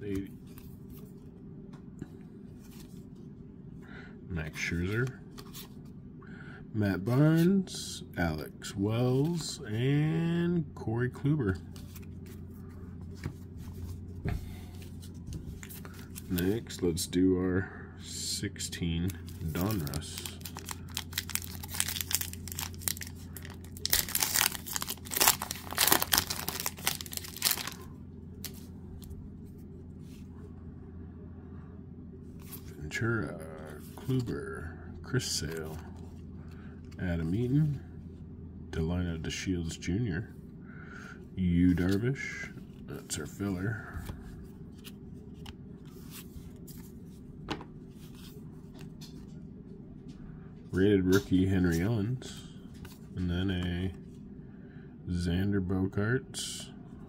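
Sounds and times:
steady low hum: 0.0 - 57.0
plastic wrapper tearing and crinkling: 19.4 - 27.9.

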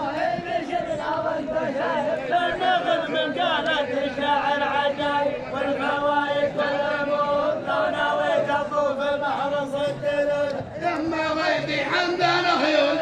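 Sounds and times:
men chanting in unison: 0.0 - 13.0.

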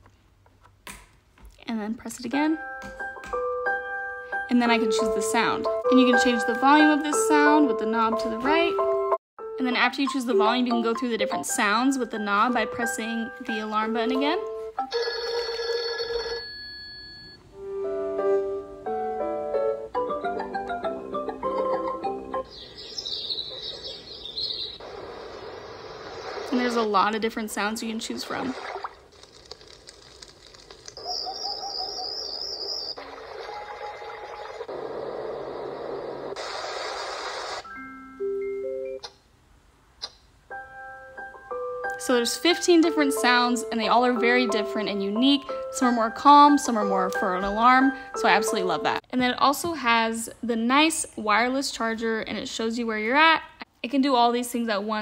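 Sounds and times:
telephone-like alarm ringing: 14.9 - 17.4
chime tune: 16.4 - 17.4
steady hiss from speaker: 34.7 - 41.0.

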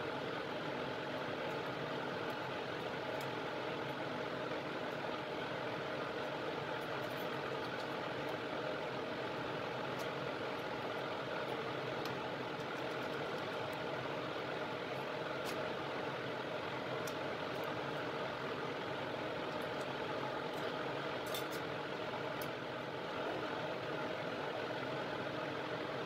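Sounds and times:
blower fan whirring: 0.0 - 26.0.

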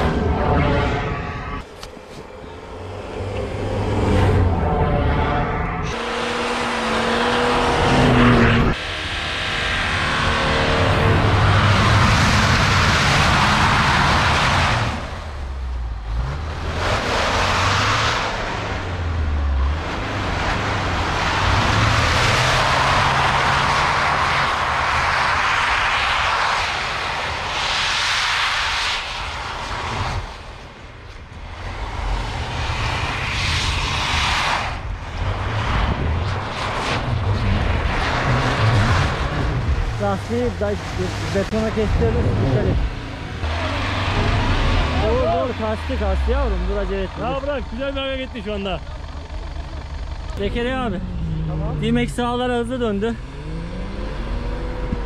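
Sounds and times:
truck engines revving: 0.0 - 55.0
tyres churning snow: 5.9 - 30.5, 31.6 - 55.0.

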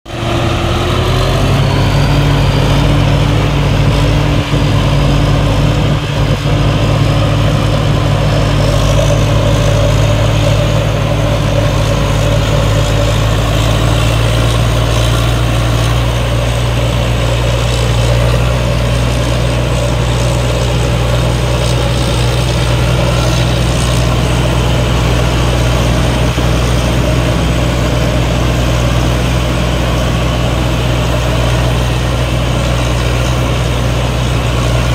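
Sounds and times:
diesel engine running under load: 0.0 - 34.9
threshing machinery whirring: 0.1 - 34.9.

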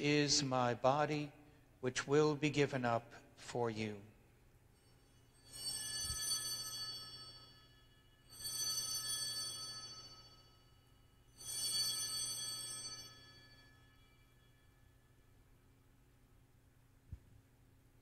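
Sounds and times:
bright high bells ringing: 4.8 - 15.2.

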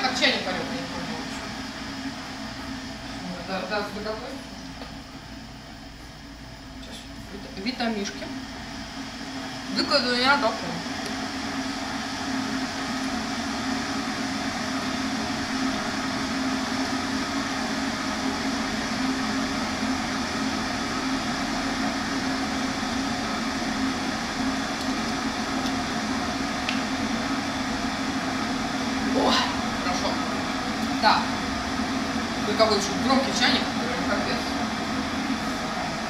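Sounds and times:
kettle heating water: 0.0 - 36.0.

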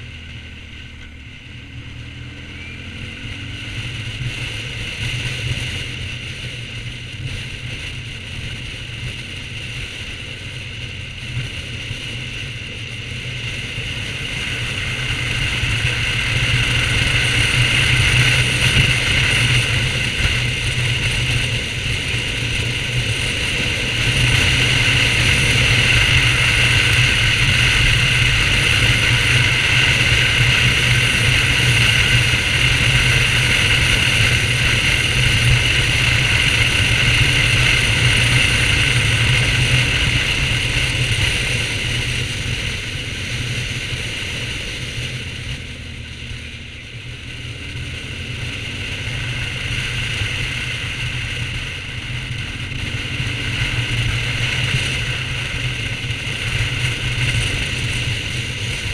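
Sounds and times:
motorcycle engine running: 0.0 - 58.9.

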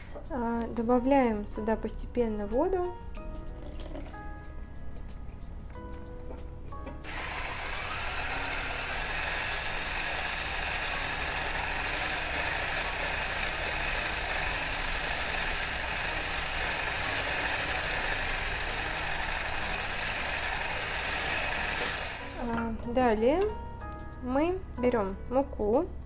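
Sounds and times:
electric hand mixer running: 7.0 - 22.6.

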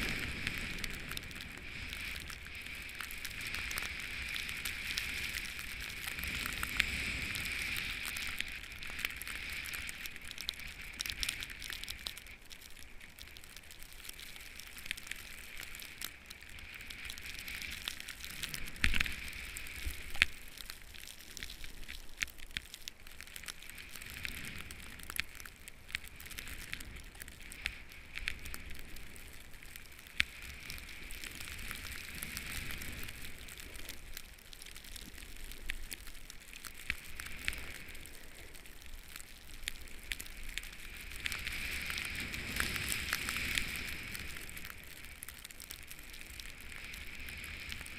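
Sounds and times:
snowboard sliding through powder: 0.0 - 12.0, 40.4 - 45.0.

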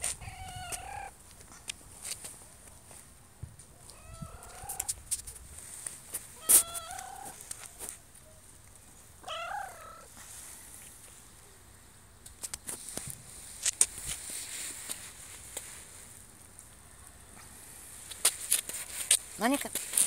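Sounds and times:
cat meowing: 0.2 - 1.1, 3.9 - 4.9, 6.4 - 7.4, 9.2 - 10.1.

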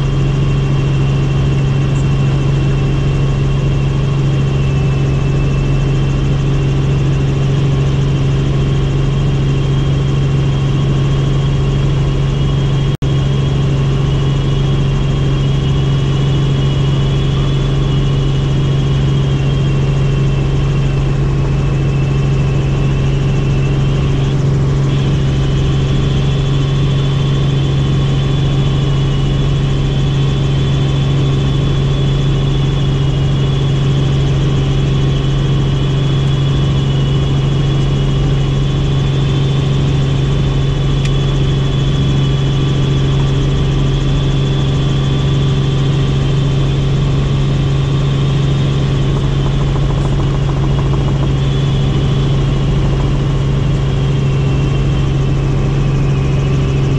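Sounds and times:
helicopter rotors low hum: 0.0 - 56.9
helicopter turbine whine: 0.0 - 56.9.

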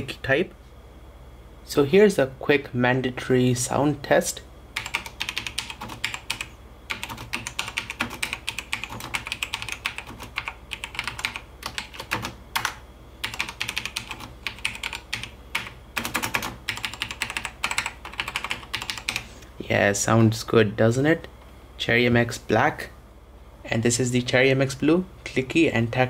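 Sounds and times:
typing on mechanical keyboard: 4.8 - 19.2.

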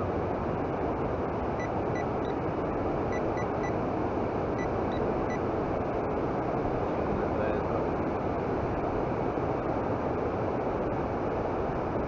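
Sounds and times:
electronic alarm beeping: 1.6 - 2.4, 3.1 - 3.8.

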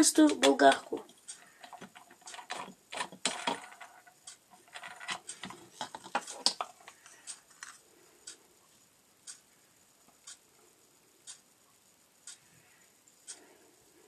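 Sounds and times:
grinder disc clicking and scraping: 0.2 - 7.8.

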